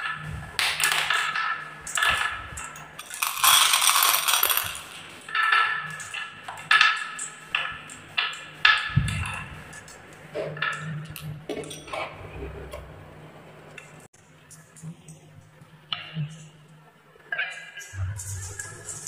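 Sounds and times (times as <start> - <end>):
glass marbles clicking on wood: 0.6 - 9.1
marbles rattling: 3.0 - 6.2.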